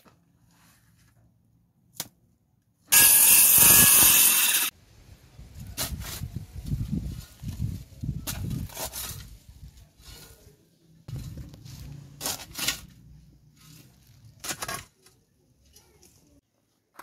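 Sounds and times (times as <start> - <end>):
spade digging into dry soil: 5.6 - 6.4, 11.1 - 14.9.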